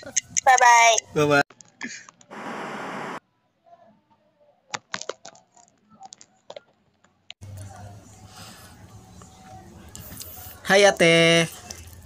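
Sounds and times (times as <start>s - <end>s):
static hiss: 2.3s - 3.2s.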